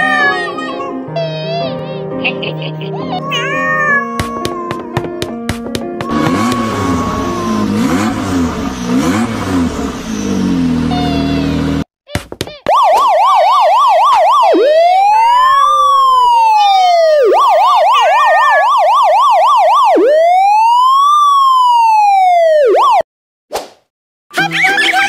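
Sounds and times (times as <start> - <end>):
police siren yelp and wail: 6.0 - 9.3, 12.7 - 23.0.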